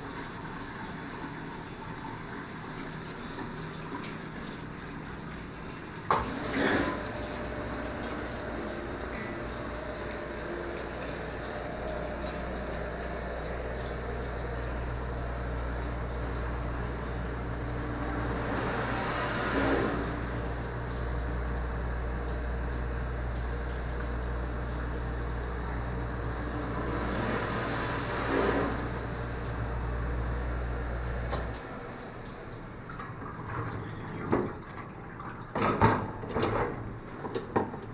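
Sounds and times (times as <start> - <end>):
dishwasher motor hum: 0.0 - 37.9
water spraying inside dishwasher: 0.0 - 37.9.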